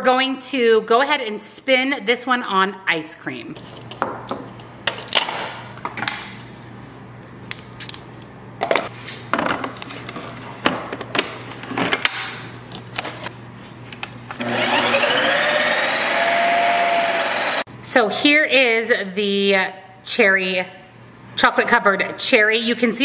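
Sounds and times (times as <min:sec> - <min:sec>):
ice cream machine motor whirring: 0:14.3 - 0:17.7.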